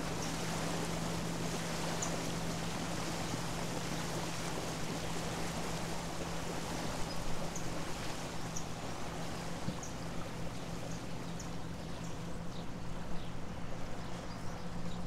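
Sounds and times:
boat motor droning: 0.0 - 15.0
water and breeze rushing: 0.0 - 15.0.

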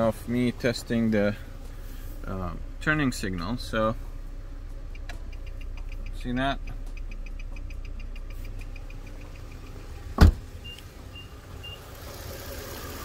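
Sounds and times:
car engine idling: 0.0 - 13.0
turn signal ticking rapidly: 4.6 - 13.0
loud thump: 10.2 - 10.5.

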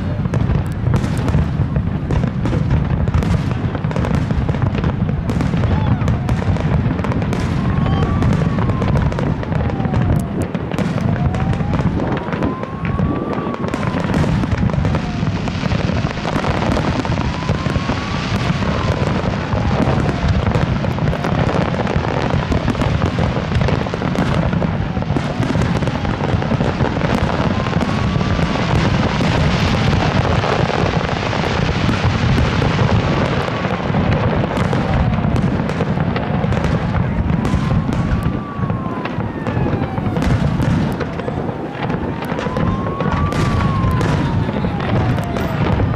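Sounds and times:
fireworks bursting and crackling: 0.0 - 45.9
faint wailing tone: 7.5 - 10.4.

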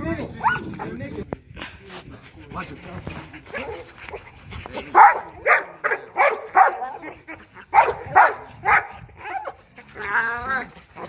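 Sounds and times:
dogs barking: 0.4 - 0.9, 4.9 - 9.8.

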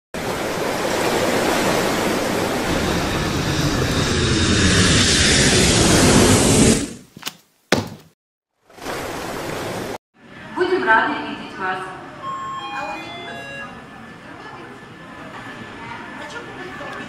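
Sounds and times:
rush of surf: 0.2 - 4.8
jet airliner passing: 0.2 - 6.9.

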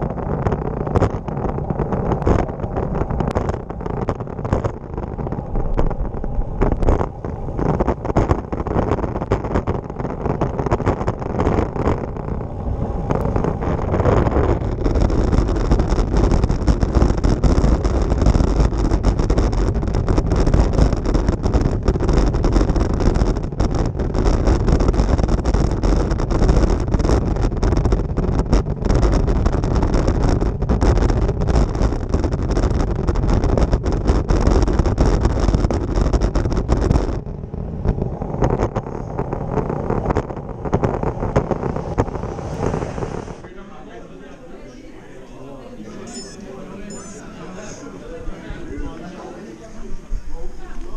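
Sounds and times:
bicycle rattling over cobblestones: 0.0 - 32.3
wind rush on microphone: 0.0 - 43.5.

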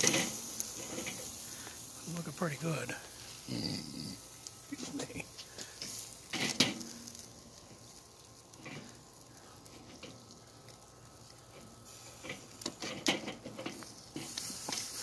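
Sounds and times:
meat sizzling over charcoal: 0.0 - 15.0.

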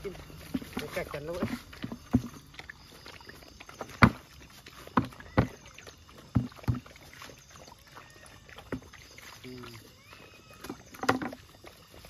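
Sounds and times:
knocks on plastic bucket: 0.4 - 2.4, 3.9 - 4.3, 4.9 - 5.6, 6.3 - 6.9, 10.6 - 11.4.

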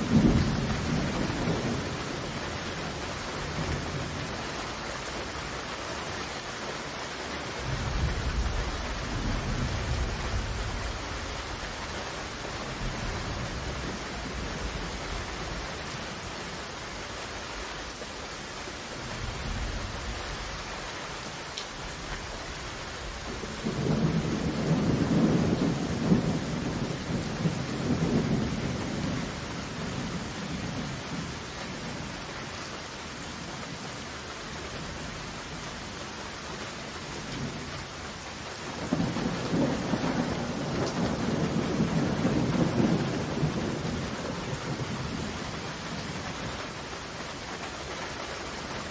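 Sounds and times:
thunder rolling: 0.0 - 2.4, 23.0 - 31.3, 38.8 - 45.3
heavy rain falling: 0.0 - 48.9.

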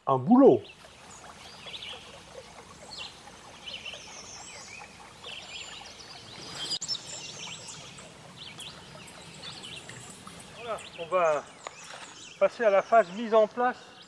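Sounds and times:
faint outdoor background noise: 0.0 - 14.0
small birds chirping: 0.3 - 14.0.

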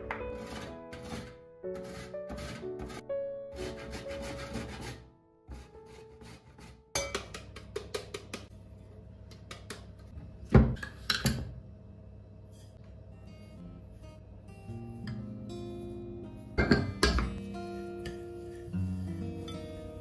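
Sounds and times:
lemon rasping on grater: 0.3 - 6.8.

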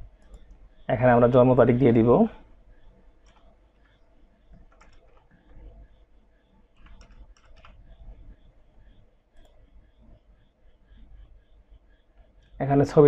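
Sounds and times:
computer mouse clicks: 0.2 - 0.6, 3.2 - 5.8, 6.8 - 8.5, 9.3 - 9.6
keystrokes: 3.2 - 5.7, 6.8 - 8.2, 9.4 - 9.6.

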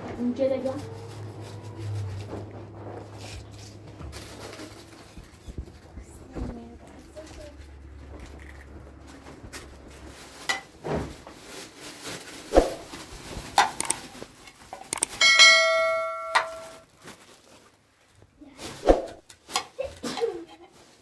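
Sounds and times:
knocks and clatter: 1.4 - 11.5
ringing metallic strike: 15.1 - 16.8.

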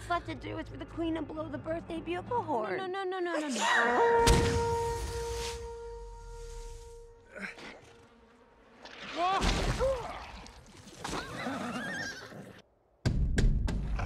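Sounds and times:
horses whinnying: 11.1 - 12.6.

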